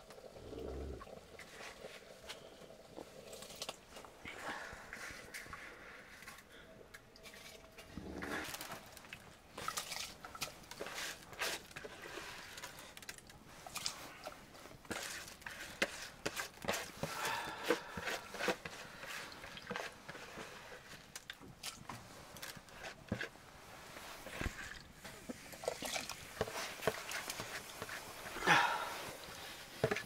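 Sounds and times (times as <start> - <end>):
hands working wet rice: 7.2 - 30.0.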